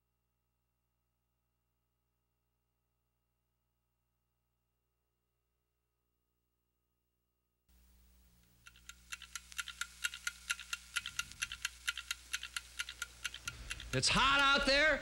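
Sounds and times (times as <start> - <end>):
low steady hum: 7.7 - 15.0
rapid even clicking: 8.4 - 14.9.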